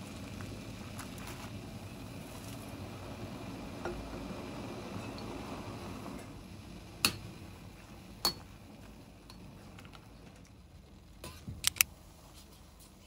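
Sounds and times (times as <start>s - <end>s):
sharp clicks: 11.6s - 11.9s.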